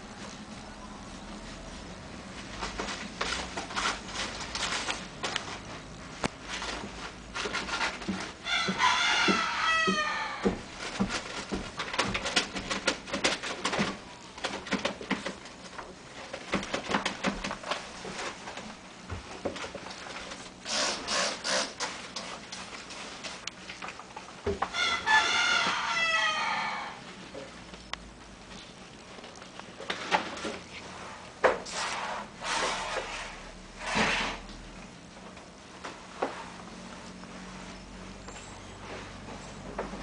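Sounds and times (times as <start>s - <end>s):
soft clicks and rustles: 27.1s - 31.9s.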